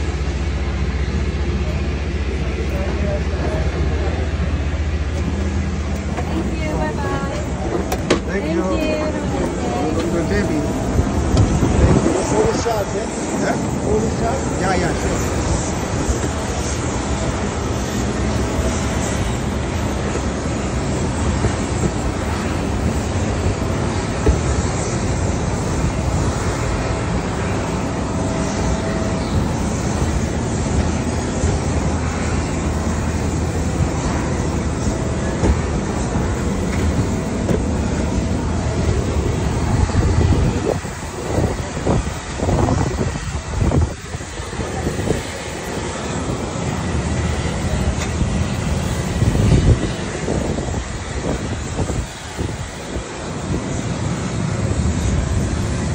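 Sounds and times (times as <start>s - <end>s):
aircraft engines running: 0.0s - 55.9s
wind buffeting microphone: 3.1s - 55.9s.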